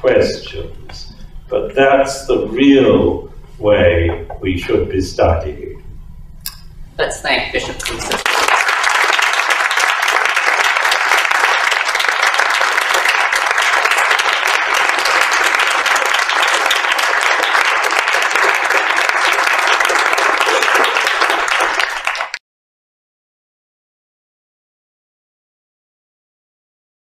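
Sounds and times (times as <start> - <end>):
audience applause: 7.8 - 22.4.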